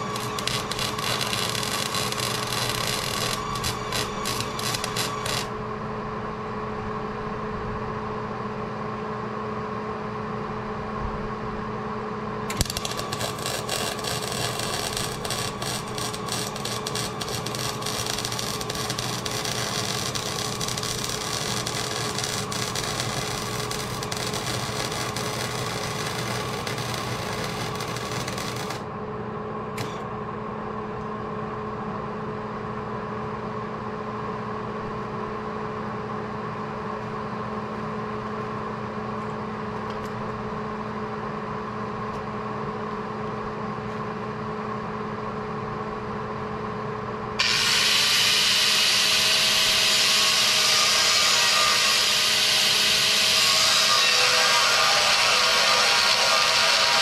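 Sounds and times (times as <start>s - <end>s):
welding arc crackling: 0.0s - 5.6s, 12.5s - 28.9s, 51.7s - 57.0s
welding machine hum: 0.0s - 6.0s, 12.4s - 30.1s, 47.4s - 57.0s.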